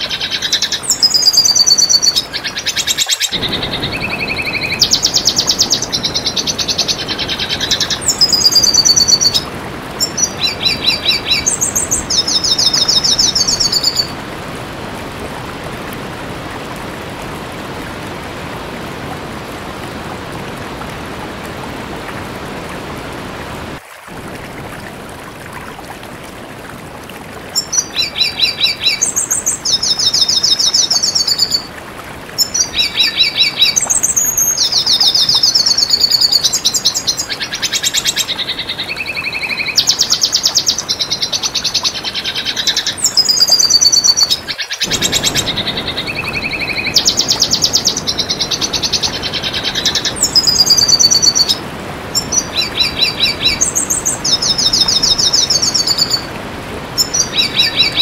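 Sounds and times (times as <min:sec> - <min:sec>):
bird twittering trills: 0:00.0 - 0:14.2.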